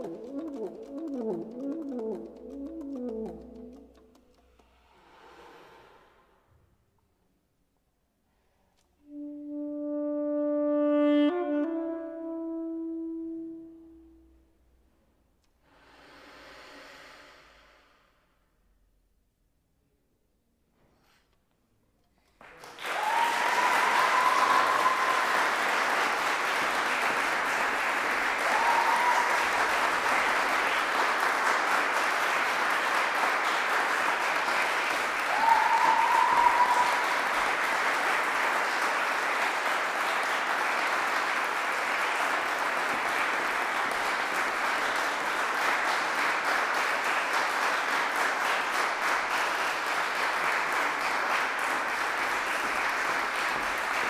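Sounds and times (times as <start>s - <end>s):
audience applauding: 0.0s - 4.1s, 22.4s - 54.0s.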